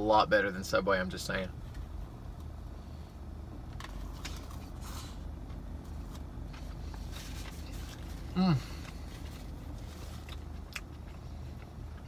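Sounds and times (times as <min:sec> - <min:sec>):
chewing and handling sandwich: 0:03.6 - 0:12.0.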